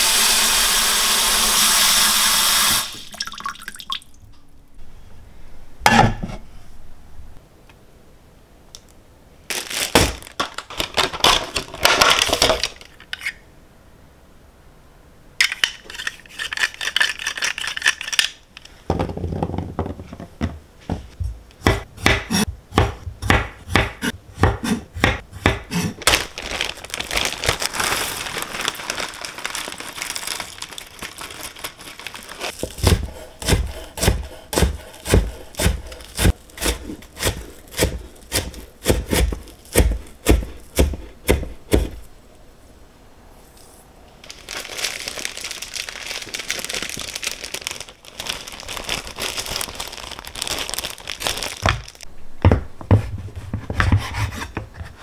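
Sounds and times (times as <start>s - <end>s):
plastic blister pack crinkling: 9.5s - 13.3s, 26.0s - 32.9s, 44.2s - 52.1s
knife chopping on wooden board: 21.6s - 25.9s, 32.6s - 42.0s, 52.4s - 54.6s.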